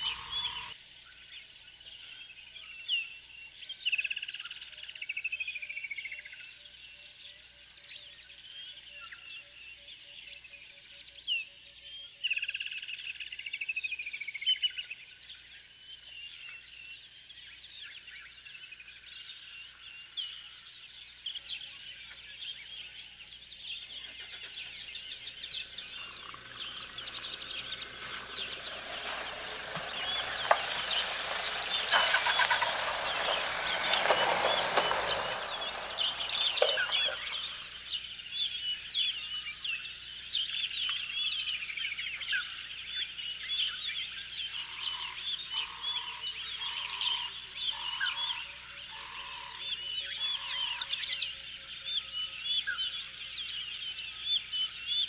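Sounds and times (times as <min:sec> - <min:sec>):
birds calling and chirping: 0:00.0 - 0:05.4, 0:06.2 - 0:55.0
bird descending trill: 0:25.6 - 0:37.8
rushing noise: 0:25.8 - 0:37.8.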